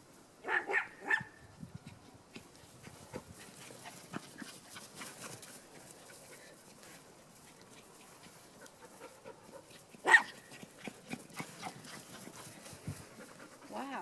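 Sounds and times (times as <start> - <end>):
small dog barking: 0.4 - 1.4, 10.0 - 10.5
faint rustling: 1.6 - 14.0.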